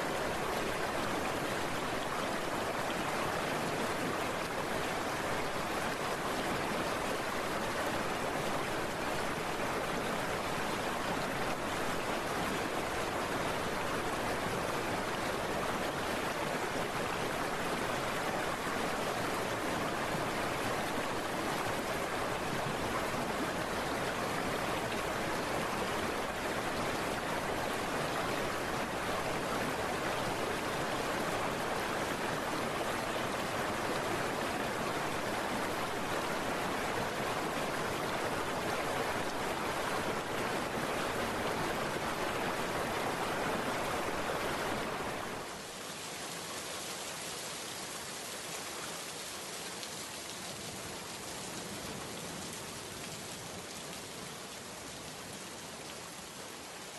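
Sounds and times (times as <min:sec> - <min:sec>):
heavy rain: 0:00.0 - 0:56.9.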